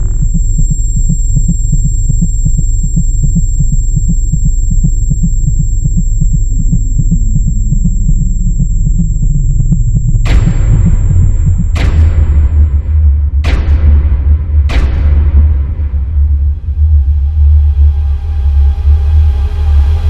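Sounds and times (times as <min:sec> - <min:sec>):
lightsaber electric hum: 0:00.0 - 0:13.2.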